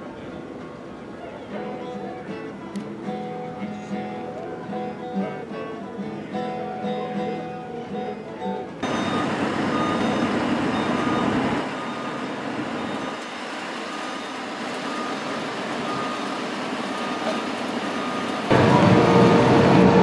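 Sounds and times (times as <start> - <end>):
guitar music: 1.5 - 11.8, 18.5 - 20.0
backup alarm beeping: 8.8 - 20.0
vehicle engine running: 8.8 - 20.0.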